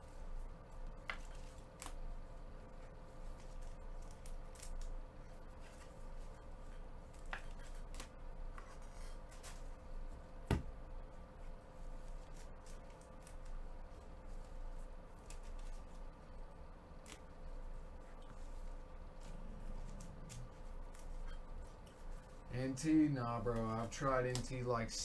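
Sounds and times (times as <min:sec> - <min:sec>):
faint steady hum: 0:00.0 - 0:25.0
cards handled on a table: 0:01.0 - 0:02.0, 0:07.0 - 0:09.7.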